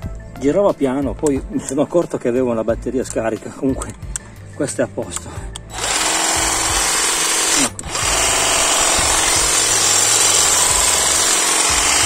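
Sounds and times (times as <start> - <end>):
hedge trimmer buzzing: 5.7 - 12.0.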